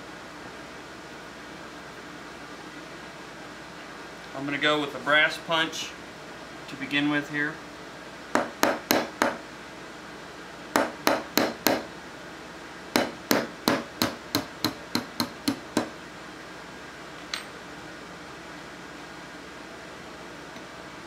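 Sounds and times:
hammer tapping metal punch: 8.4 - 9.4, 10.8 - 11.8, 13.0 - 15.9.

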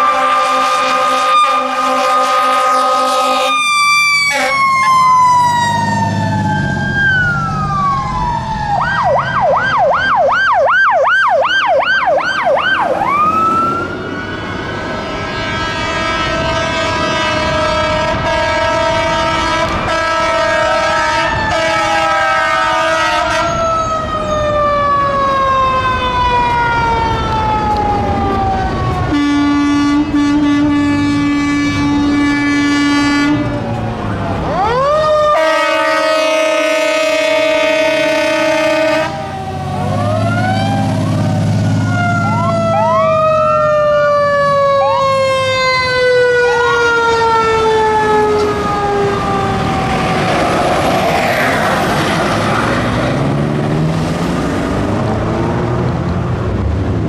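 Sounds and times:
low horn blast: 0.0 - 6.5, 13.5 - 24.0, 26.2 - 33.9, 35.0 - 42.9
siren fast yelp: 0.0 - 29.5, 34.1 - 51.9
fire engine sirens wailing: 0.0 - 57.0
truck engines running: 0.0 - 57.0.

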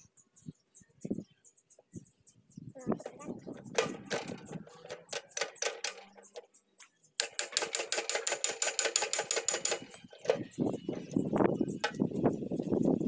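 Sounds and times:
metal ratchet clicking: 7.2 - 12.2.

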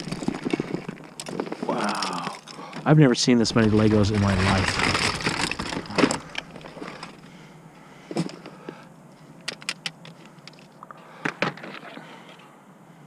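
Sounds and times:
plastic toy bricks clattering: 3.5 - 7.2.

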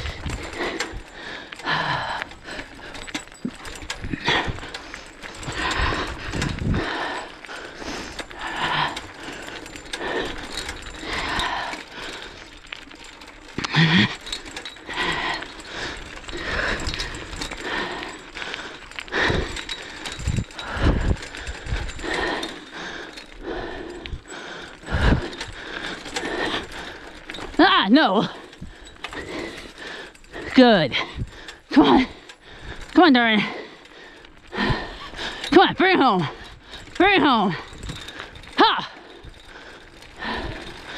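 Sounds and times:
hard breathing: 0.0 - 40.9
metal clips jingling: 2.3 - 7.0, 8.0 - 18.5, 35.0 - 39.4.

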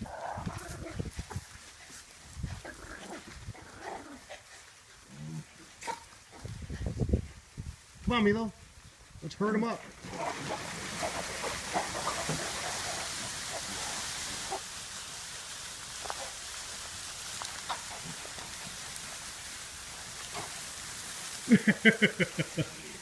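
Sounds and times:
piglets grunting and squealing: 0.0 - 1.4, 2.5 - 6.5
rustling straw: 0.0 - 23.0
steady hiss: 0.2 - 23.0.

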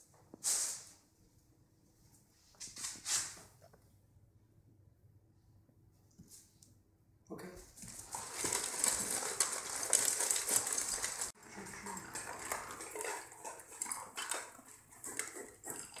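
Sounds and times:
dogs eating from metal bowls: 7.7 - 16.0
dogs chewing: 7.8 - 16.0.

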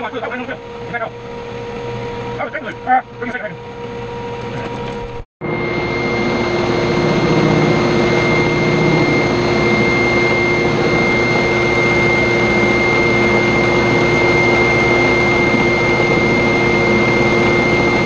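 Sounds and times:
shop vacuum running: 0.0 - 18.0.

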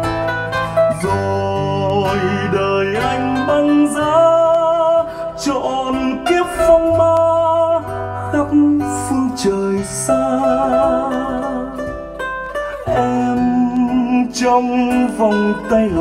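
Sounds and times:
ballad over hi-fi loudspeakers: 0.0 - 16.0.

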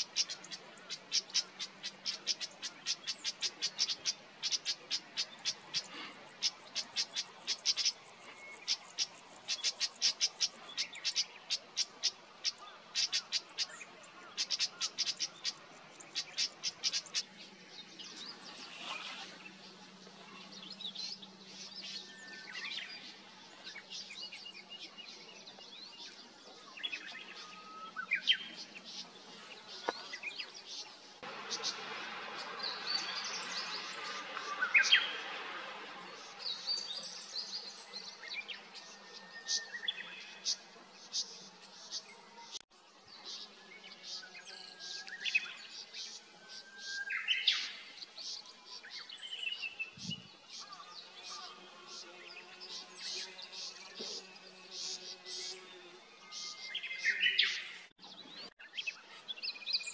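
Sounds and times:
background hiss: 0.0 - 57.9
birds chirping and whistling: 52.3 - 59.9.

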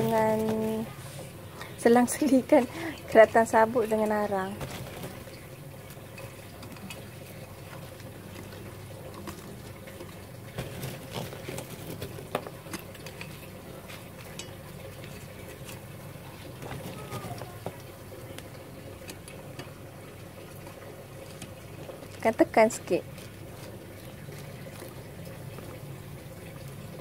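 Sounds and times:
charcoal lumps clicking and rustling: 0.0 - 27.0.

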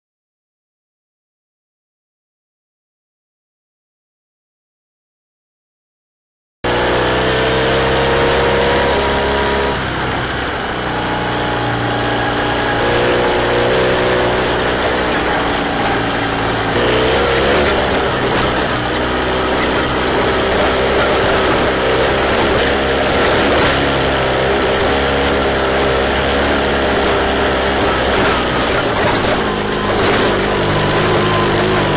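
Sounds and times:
motorcycle engine running: 6.6 - 31.9.

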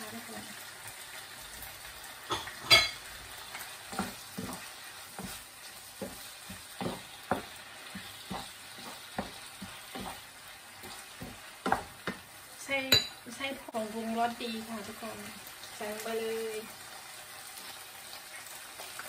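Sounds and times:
frying sizzle: 0.0 - 19.0
spatula scraping frying pan: 2.2 - 12.3.

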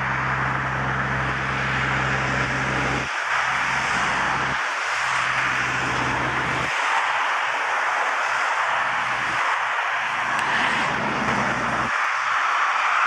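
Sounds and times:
low steady hum: 0.0 - 6.7
rushing jet noise: 0.0 - 13.0.

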